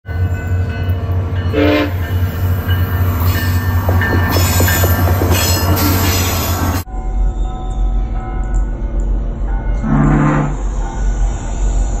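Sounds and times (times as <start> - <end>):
train rumbling by: 0.0 - 12.0
train horn toot: 1.5 - 2.1, 9.8 - 10.8.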